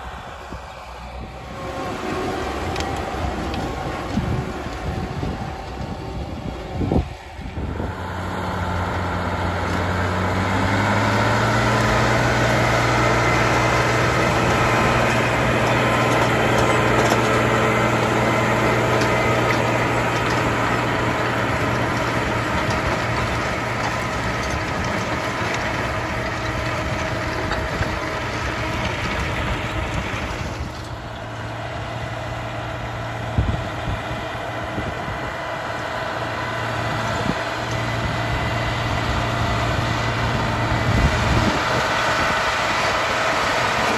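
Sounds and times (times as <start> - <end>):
tractor engine under load: 0.0 - 43.9.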